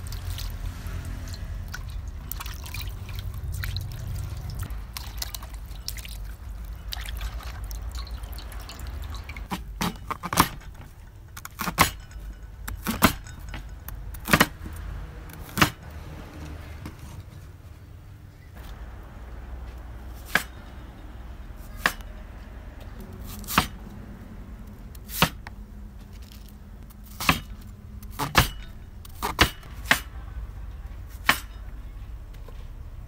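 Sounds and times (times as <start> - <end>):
water dripping and splashing: 0.0 - 9.5
knife chopping on wooden board: 25.1 - 25.4, 31.2 - 31.5.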